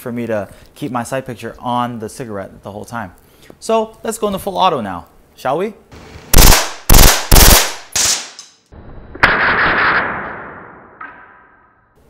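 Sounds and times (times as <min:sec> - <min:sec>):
sharp crack: 0:06.3 - 0:08.6
airsoft pistol bursts: 0:06.4 - 0:08.4.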